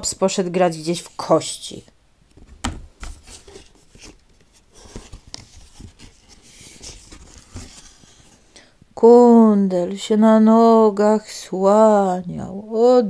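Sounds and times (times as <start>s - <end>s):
book pages turning: 2.3s - 8.5s.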